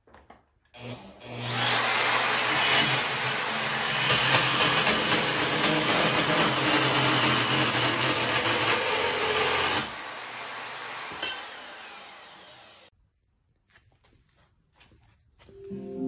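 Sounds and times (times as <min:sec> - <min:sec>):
power tool running and winding down: 0:00.8 - 0:12.9.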